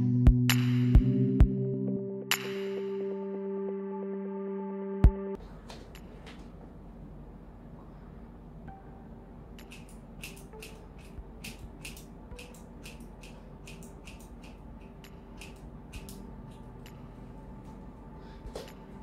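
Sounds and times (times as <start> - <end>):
scissors snipping hair: 9.6 - 16.2.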